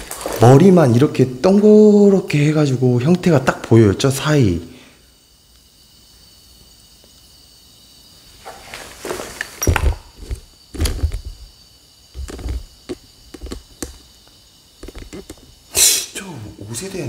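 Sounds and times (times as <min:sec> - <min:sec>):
footsteps on concrete floor: 0:08.4 - 0:11.6, 0:12.2 - 0:14.0.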